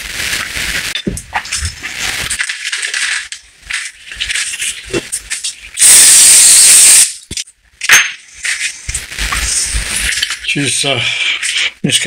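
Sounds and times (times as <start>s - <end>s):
paper towel rustling: 0.0s - 5.6s, 8.4s - 10.8s
aerosol spray hissing: 5.8s - 7.1s.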